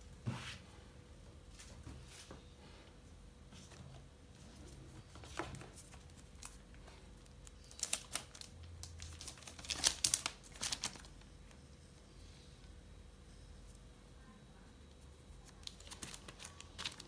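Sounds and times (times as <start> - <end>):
plastic wrap crinkling: 5.1 - 11.3, 15.4 - 17.0.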